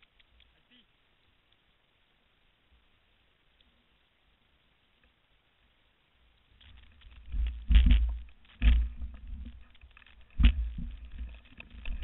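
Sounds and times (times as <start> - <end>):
faint clicks and rustles: 0.0 - 2.0, 6.2 - 12.0.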